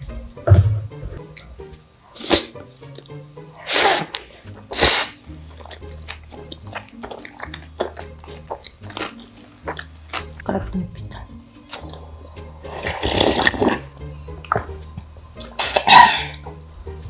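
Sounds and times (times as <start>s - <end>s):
background music: 0.0s - 17.0s
person slurping noodles: 2.2s - 2.6s, 3.6s - 5.9s, 11.8s - 13.9s
wet chewing clicks: 5.5s - 12.0s.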